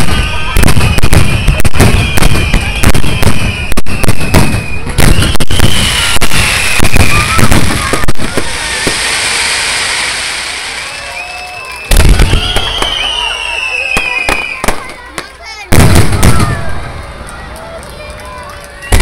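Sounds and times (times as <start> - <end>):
firework shells bursting: 0.0 - 15.2
firework hiss: 4.6 - 16.6.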